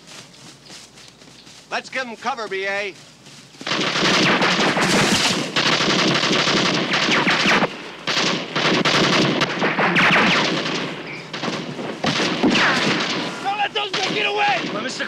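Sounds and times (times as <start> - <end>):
rapid automatic gunfire: 3.6 - 15.0.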